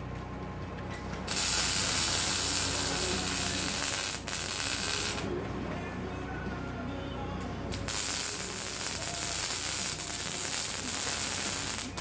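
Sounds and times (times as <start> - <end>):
welding arc crackling: 1.3 - 5.3, 7.7 - 12.0.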